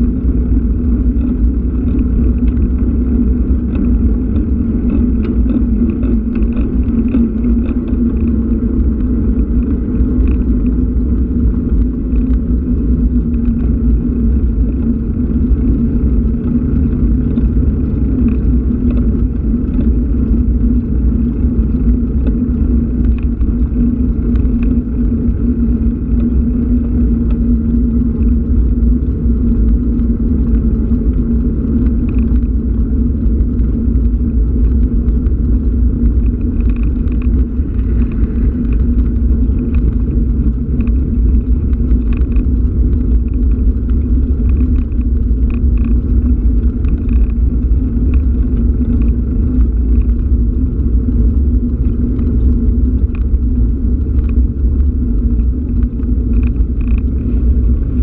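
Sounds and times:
wind and road noise rumble: 0:00.0 - 0:58.0.

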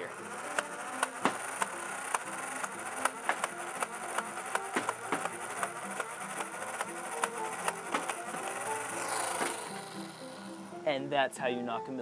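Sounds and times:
toy blaster flywheels whining: 0:00.0 - 0:10.9
foam darts firing clicks: 0:00.5 - 0:08.2.

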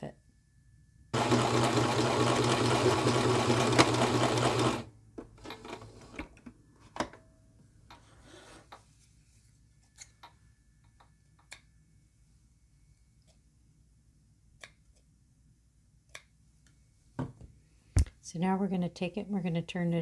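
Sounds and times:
sewing machine stitching: 0:01.2 - 0:06.2.

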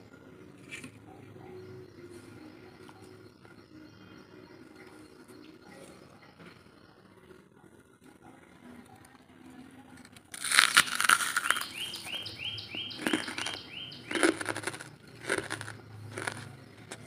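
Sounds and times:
bird chirping: 0:01.1 - 0:07.4, 0:10.8 - 0:17.0
charcoal crunching being chewed: 0:09.9 - 0:17.0.

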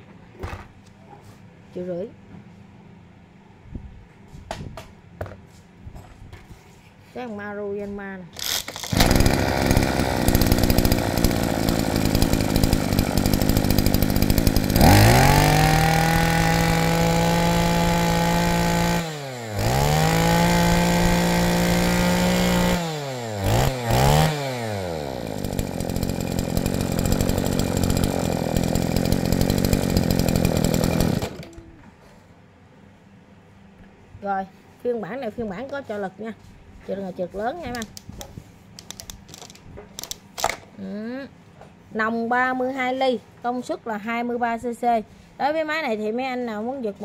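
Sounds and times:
brush cutter engine revving: 0:08.4 - 0:31.7, 0:37.6 - 0:38.2.

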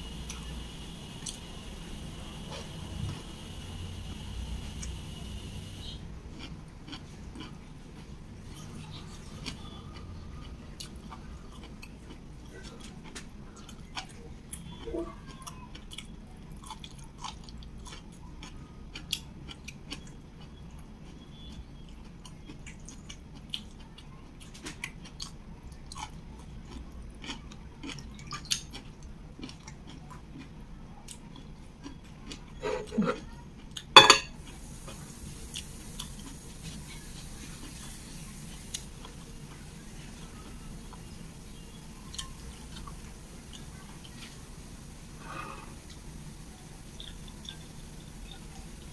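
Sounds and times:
chewing and mouth clicks: 0:06.4 - 0:33.9, 0:47.0 - 0:48.5
ceramic bowl clattering onto plate: 0:34.0 - 0:34.4.

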